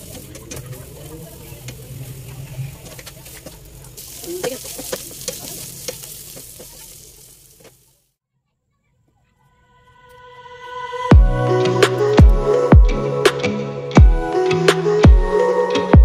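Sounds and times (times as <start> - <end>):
onions sizzling in hot oil: 0.0 - 8.1
spatula scraping a pan: 1.7 - 7.8.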